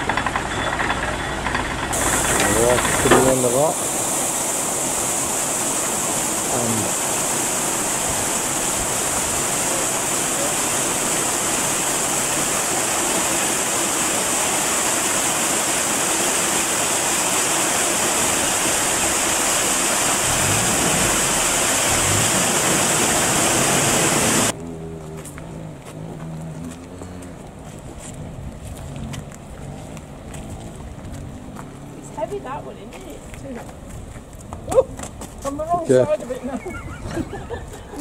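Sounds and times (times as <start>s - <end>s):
water rushing into canal lock: 0.0s - 24.6s.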